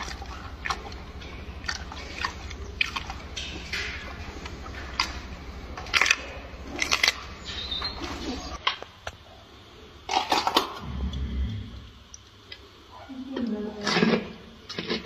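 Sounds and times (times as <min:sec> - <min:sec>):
gorilla chewing food: 0:00.0 - 0:08.6.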